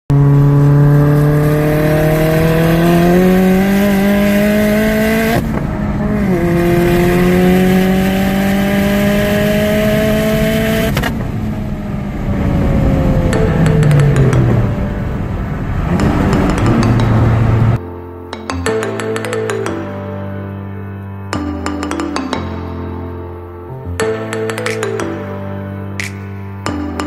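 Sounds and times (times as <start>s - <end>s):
car engine accelerating: 0.1s - 17.8s.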